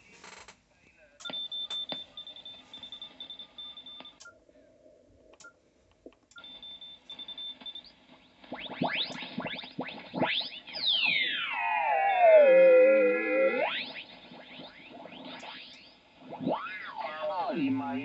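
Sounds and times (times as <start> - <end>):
radio whistles gliding in pitch: 8.6 - 18.0.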